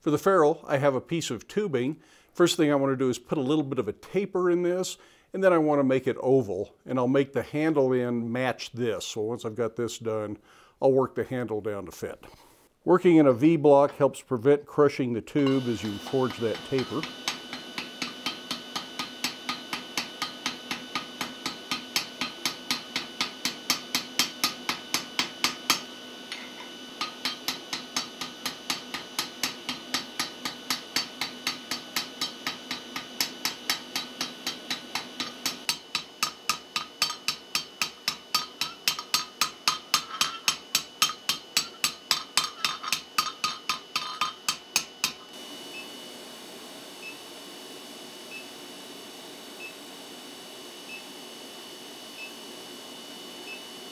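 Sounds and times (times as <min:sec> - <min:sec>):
hammer striking hot steel: 0:15.4 - 0:45.4.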